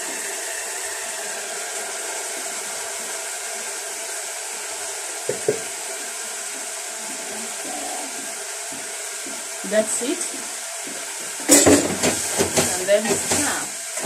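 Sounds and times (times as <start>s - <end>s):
water boiling in pot: 0.0s - 14.0s
bowl knocking against pot: 5.3s - 5.7s.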